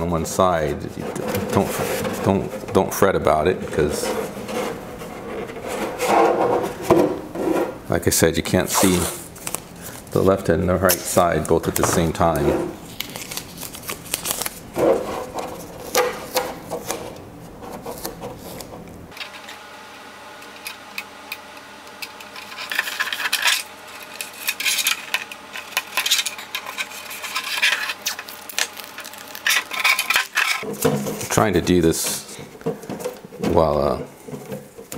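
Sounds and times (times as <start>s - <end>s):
tape being torn: 8.7s - 9.6s, 12.8s - 14.6s, 22.5s - 30.6s.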